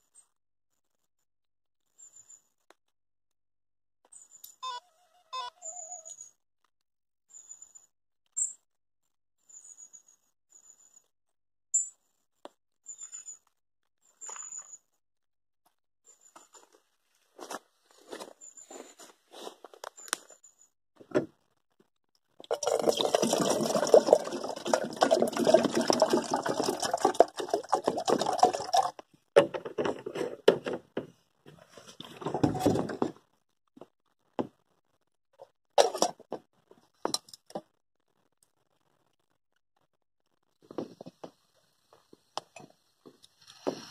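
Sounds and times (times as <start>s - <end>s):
water pouring into kettle: 22.4s - 29.0s
kettle clicks and knocks: 22.5s - 31.0s.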